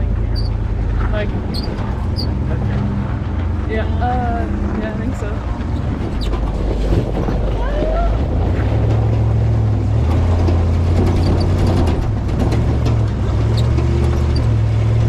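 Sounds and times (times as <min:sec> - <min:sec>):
engine running at low revs: 0:00.0 - 0:15.0
light clicks and rattles: 0:04.6 - 0:15.0.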